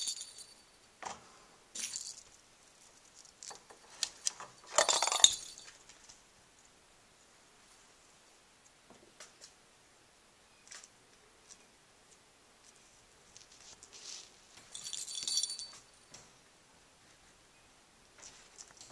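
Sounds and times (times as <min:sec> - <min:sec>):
plastic ball jingling and rattling: 0:00.0 - 0:00.7, 0:04.5 - 0:05.8, 0:14.7 - 0:15.9.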